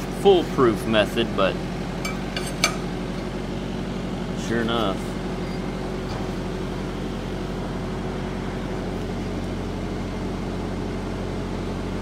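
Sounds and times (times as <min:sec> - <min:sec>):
welder engine droning: 0:00.0 - 0:12.0.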